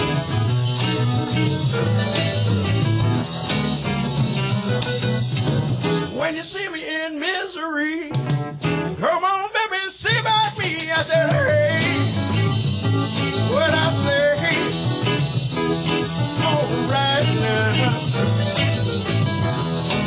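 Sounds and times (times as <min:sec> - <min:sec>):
band accompaniment: 0:00.0 - 0:20.0
man singing: 0:06.0 - 0:08.3, 0:09.0 - 0:15.3, 0:16.2 - 0:18.8.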